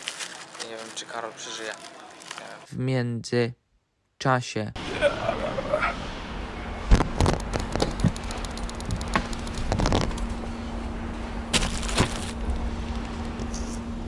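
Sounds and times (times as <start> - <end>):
plastic wrapping crinkling: 0.0 - 2.7, 11.6 - 12.4
steady low hum: 4.6 - 14.0.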